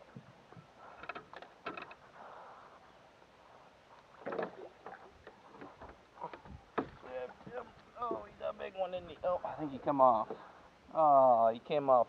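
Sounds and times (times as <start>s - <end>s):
water against hull: 0.0s - 10.8s.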